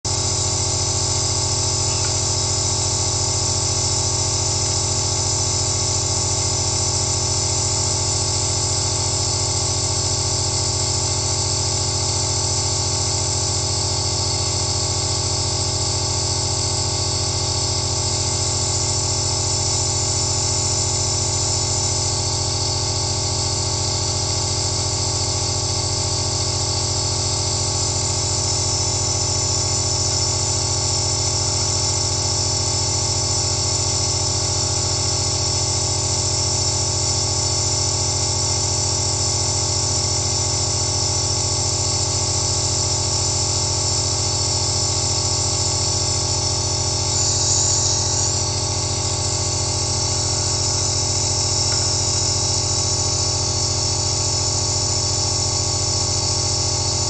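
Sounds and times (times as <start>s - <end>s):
nebulizer motor hum: 0.1s - 57.0s
hiss of air and mist: 47.1s - 48.5s.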